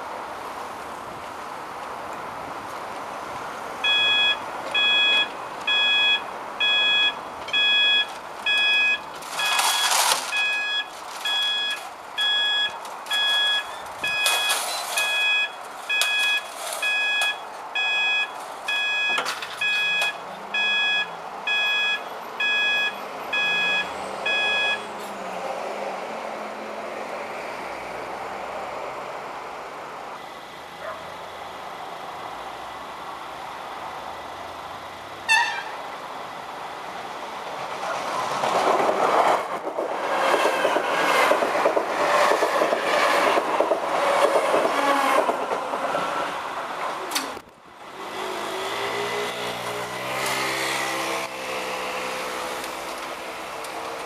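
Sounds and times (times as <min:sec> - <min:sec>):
cars passing over crossing: 0:00.0 - 0:54.0
level crossing alarm beeping: 0:03.8 - 0:24.9.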